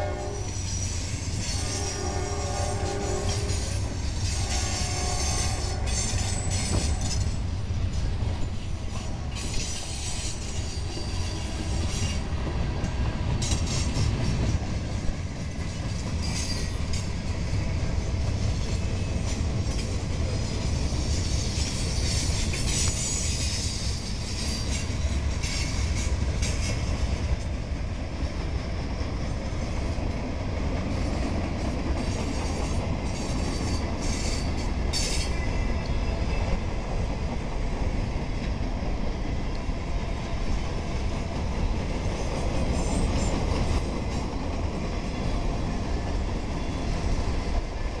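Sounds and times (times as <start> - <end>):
high-pitched wheel squeals: 0.0 - 7.4, 8.9 - 12.3, 32.4 - 35.8
train wheels rumbling on rail: 0.0 - 48.0.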